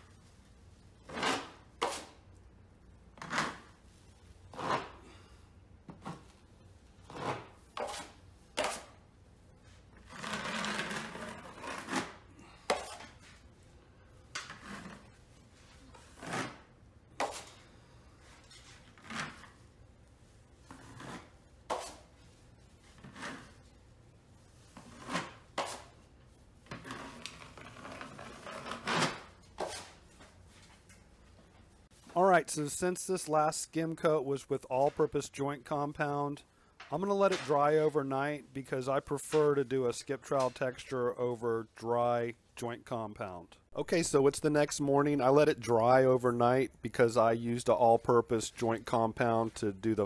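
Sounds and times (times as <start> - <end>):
taping knife spreading compound: 0.1 - 2.2, 3.2 - 5.4, 6.0 - 9.0, 9.7 - 13.5, 14.5 - 19.6, 20.3 - 23.8, 24.4 - 30.2
knife scraping against mud pan: 7.1 - 8.9.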